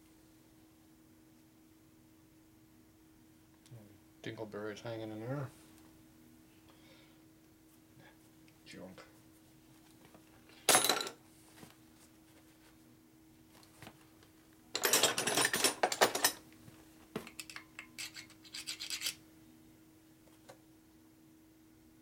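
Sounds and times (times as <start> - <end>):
screwdriver scraping metal: 17.4 - 19.2.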